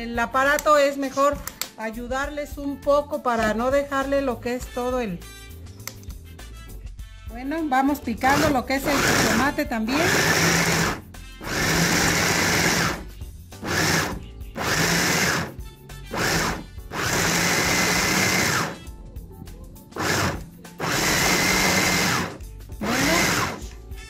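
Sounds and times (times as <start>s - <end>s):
electric food chopper whirring: 8.3s - 18.9s, 20.0s - 23.7s.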